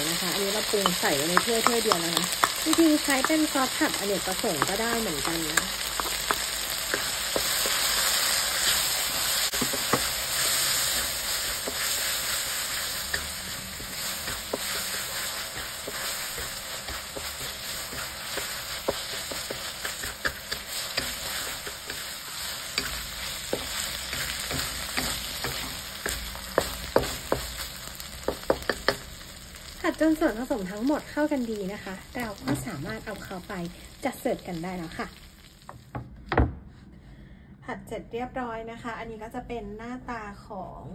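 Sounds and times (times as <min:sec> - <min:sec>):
spatula stirring and scraping: 0:00.0 - 0:29.3
chicken sizzling in a wok: 0:00.0 - 0:35.8
spatula tapping on pan: 0:22.8 - 0:27.6, 0:28.2 - 0:29.1.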